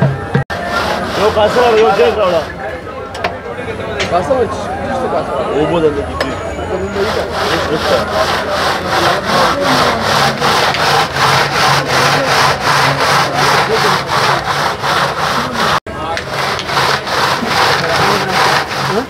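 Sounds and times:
spatula scraping metal pot: 0:00.5 - 0:02.6, 0:06.9 - 0:19.0
pot grinding in crushed ice: 0:07.0 - 0:19.0.

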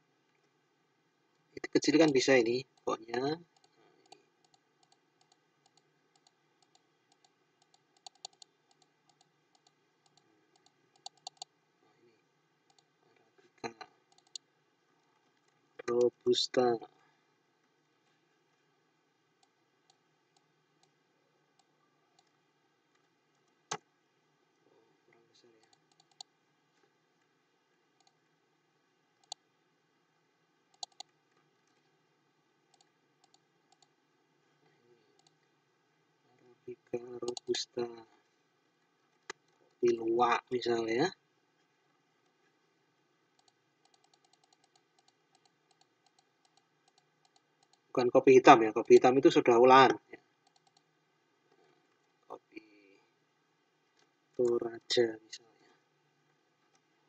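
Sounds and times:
computer mouse clicking: 0:02.0 - 0:11.5, 0:12.7 - 0:12.9, 0:13.7 - 0:14.5, 0:19.4 - 0:21.0, 0:21.6 - 0:23.9, 0:25.6 - 0:26.3, 0:28.0 - 0:28.3, 0:29.2 - 0:29.4, 0:30.7 - 0:31.9, 0:32.7 - 0:34.0, 0:35.2 - 0:35.4, 0:37.2 - 0:37.7, 0:43.3 - 0:47.9, 0:50.4 - 0:50.9.

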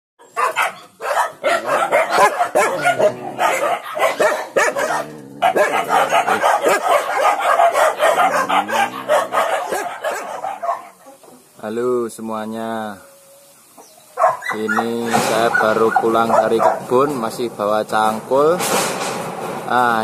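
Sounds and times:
many dogs barking: 0:00.2 - 0:11.3, 0:12.8 - 0:17.7.

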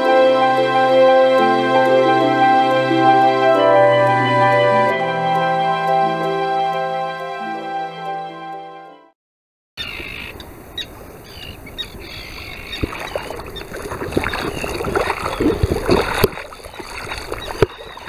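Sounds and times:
water splashing and sloshing: 0:12.3 - 0:18.0.

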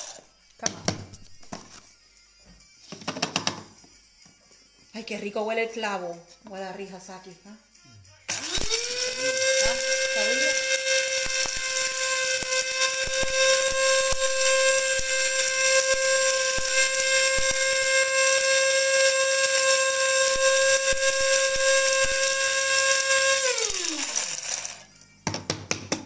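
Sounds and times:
electric spice grinder running: 0:08.3 - 0:24.9.

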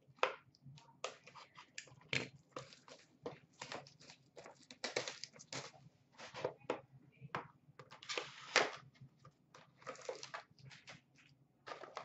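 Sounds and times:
packaging crinkling and tearing: 0:03.6 - 0:05.8.

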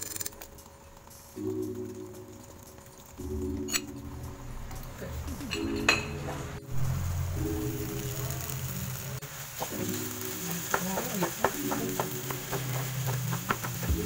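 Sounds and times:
potatoes sizzling in oil: 0:06.8 - 0:14.0.

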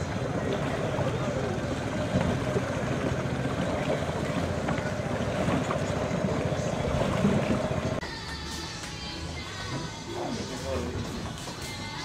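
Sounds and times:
small boat motor running: 0:00.0 - 0:08.0.

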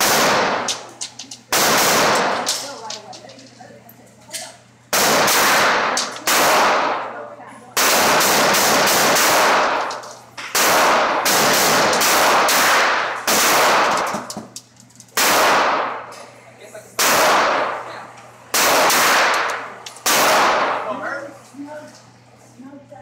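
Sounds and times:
pistol shots ringing indoors: 0:00.0 - 0:02.9, 0:04.9 - 0:07.2, 0:07.8 - 0:14.5, 0:15.1 - 0:16.2, 0:17.0 - 0:17.9, 0:18.5 - 0:21.0.

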